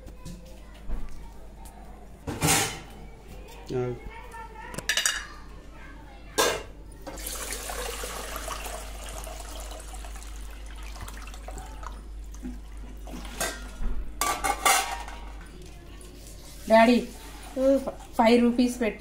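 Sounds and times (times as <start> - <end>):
water splashing in a steel bowl: 7.1 - 13.8.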